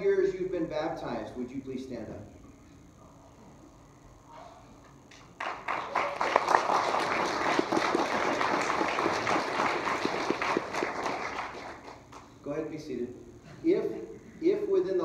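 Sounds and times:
congregation applauding: 0:05.4 - 0:12.3.

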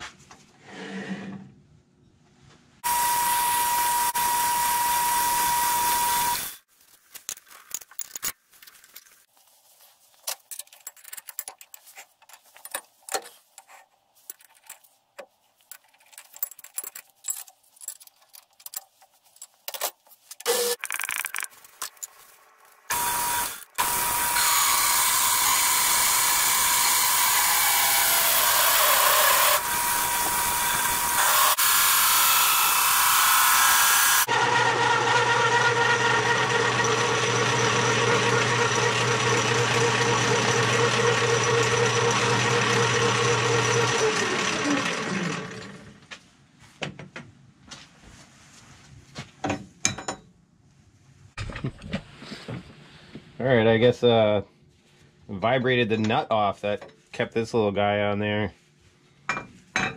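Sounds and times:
metal lathe whining: 0:02.8 - 0:06.6, 0:22.9 - 0:46.0
metal clinks and knocks: 0:10.3 - 0:20.0.

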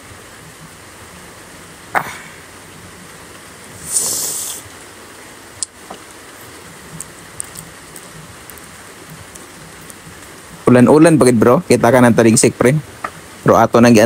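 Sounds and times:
man hissing air through lips: 0:03.7 - 0:04.8.

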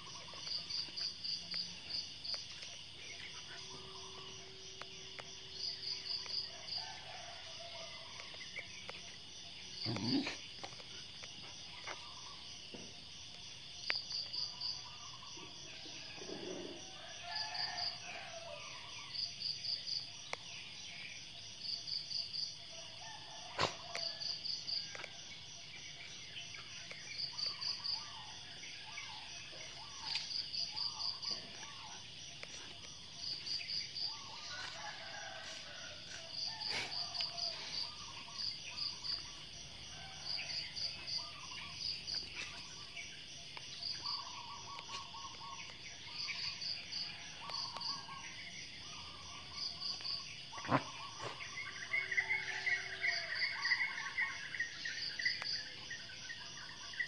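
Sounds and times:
insect chirping: 0:00.0 - 0:57.0.

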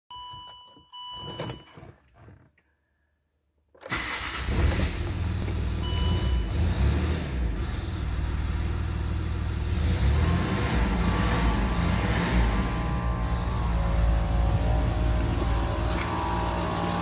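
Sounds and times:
diesel engine idling: 0:07.4 - 0:17.0.

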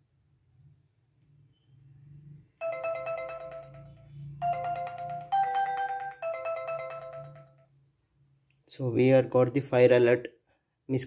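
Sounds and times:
phone ringtone melody: 0:02.6 - 0:07.8.

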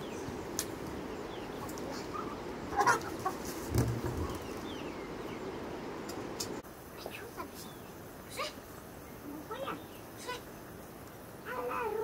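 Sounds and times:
small birds chirping: 0:00.0 - 0:12.0
steady low background noise: 0:00.0 - 0:12.0
chickens clucking: 0:01.6 - 0:04.9.

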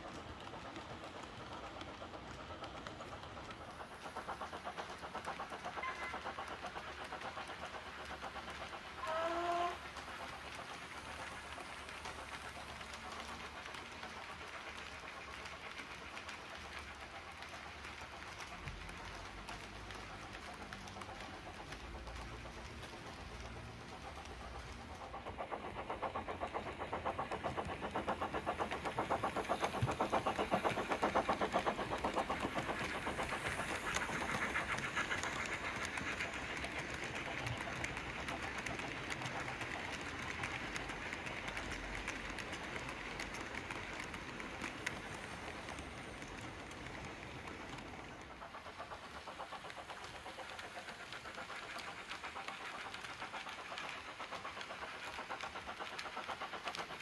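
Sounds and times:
model train wheels clattering: 0:00.0 - 0:57.0.

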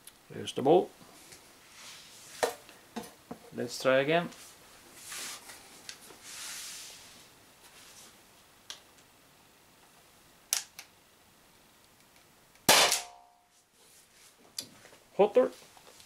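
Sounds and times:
air pistol shot: 0:12.7 - 0:13.2.

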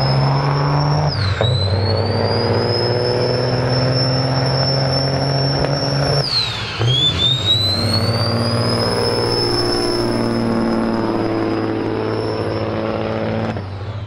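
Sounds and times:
diesel truck engine accelerating: 0:00.0 - 0:14.0
high turbo whine: 0:00.0 - 0:14.0.

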